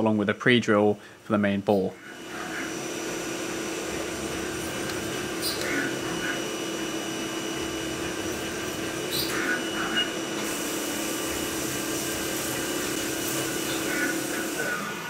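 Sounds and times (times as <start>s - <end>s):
mill spindle whine: 1.9s - 15.0s
drill cutting metal: 2.1s - 15.0s
coolant spray hissing: 10.4s - 15.0s.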